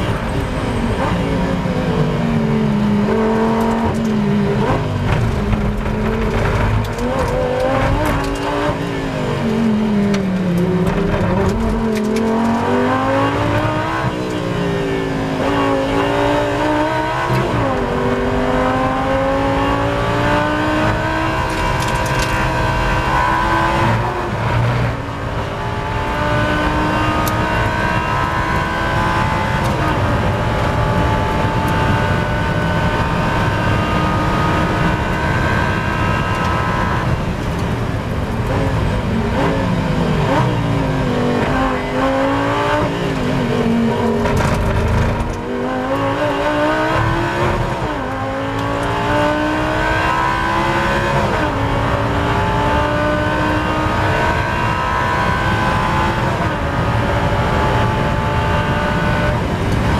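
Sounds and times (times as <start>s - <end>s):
race car engine accelerating: 0.0s - 59.9s.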